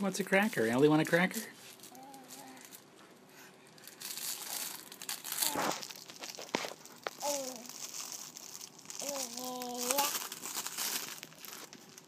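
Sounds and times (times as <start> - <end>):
plastic packaging crinkling: 3.8 - 12.0.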